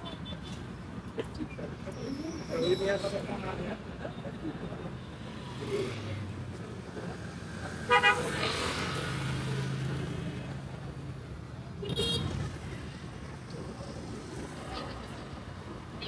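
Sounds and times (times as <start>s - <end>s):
street traffic: 0.0s - 16.0s
vehicle horns tooting: 7.8s - 8.5s, 11.8s - 12.4s.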